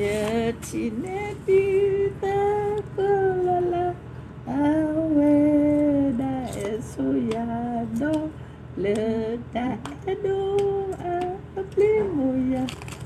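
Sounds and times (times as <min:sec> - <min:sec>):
woman singing: 0:00.0 - 0:12.9.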